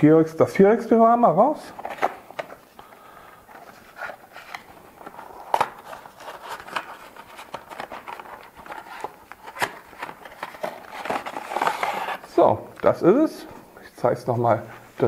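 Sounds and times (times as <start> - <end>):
cardboard box handling rustles: 3.5 - 12.3.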